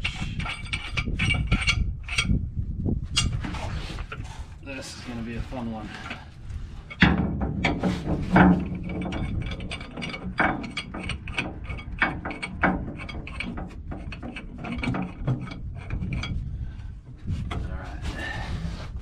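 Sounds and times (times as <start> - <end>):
pipe wrench clicking and scraping metal: 0.0 - 2.5, 3.1 - 4.4, 5.9 - 17.7.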